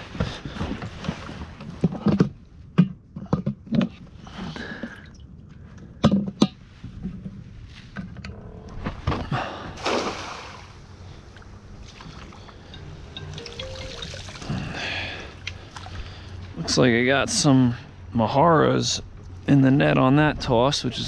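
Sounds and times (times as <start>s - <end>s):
net splashing on water: 9.8s - 10.8s.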